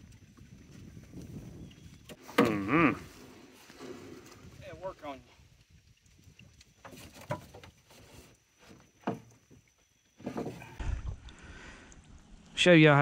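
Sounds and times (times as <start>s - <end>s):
water splashing and dripping: 0.0s - 12.9s
net hoops clattering against boat: 10.2s - 10.8s.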